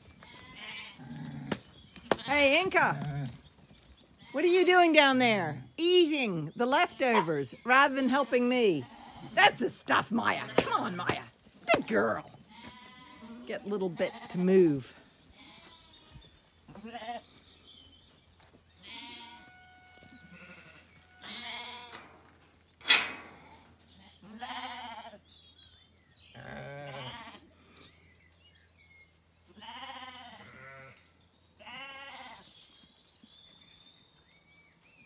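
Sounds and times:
sheep bleating: 0.2 - 1.5, 8.2 - 9.4, 11.7 - 14.5, 15.3 - 16.1, 16.7 - 17.3, 18.8 - 22.0, 24.0 - 25.2, 26.4 - 27.5, 29.6 - 31.0, 31.6 - 32.4.

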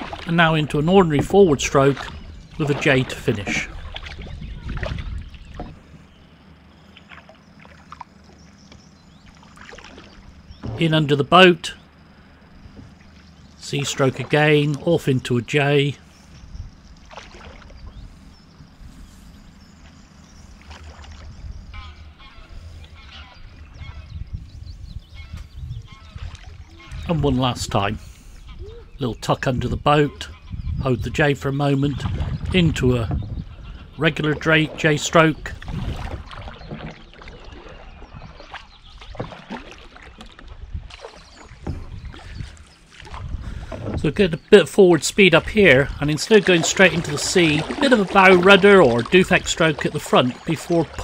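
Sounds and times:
paddle splashing water: 0.0 - 29.0, 30.2 - 51.0
wind on microphone: 0.9 - 6.1, 16.1 - 34.1, 35.4 - 39.3, 40.2 - 44.4.

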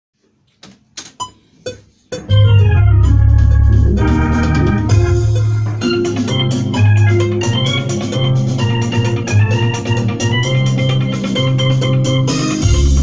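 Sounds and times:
electronic keyboard organ sound: 2.1 - 13.0
heavy bass: 2.2 - 11.1, 12.0 - 13.0.

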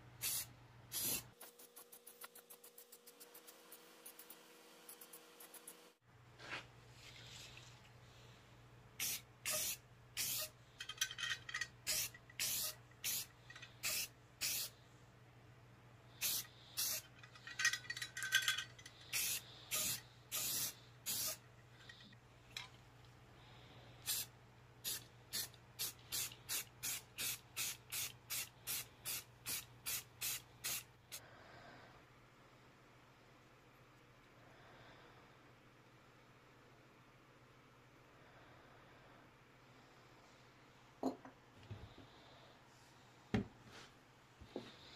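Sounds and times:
spray can hissing: 0.2 - 4.3, 9.0 - 10.5, 11.9 - 14.7, 16.2 - 17.0, 19.1 - 21.4, 24.1 - 30.9
spray can rattling: 9.0 - 14.7, 16.2 - 22.0.

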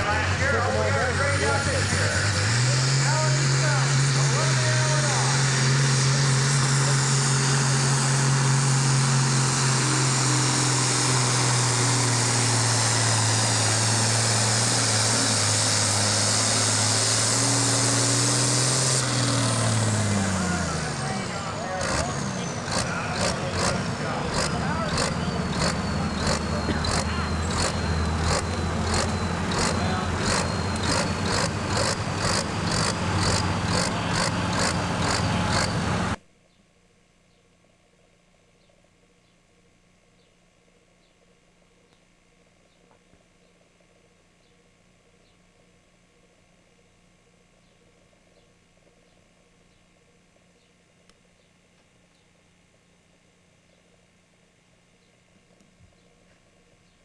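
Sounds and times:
tractor diesel engine running hard: 0.0 - 36.2.

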